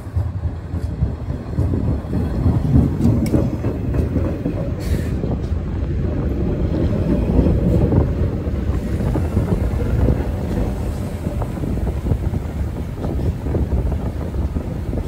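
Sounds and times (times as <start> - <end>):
subway train wheels rumbling: 0.0 - 15.0
wind buffeting microphone: 0.0 - 15.0.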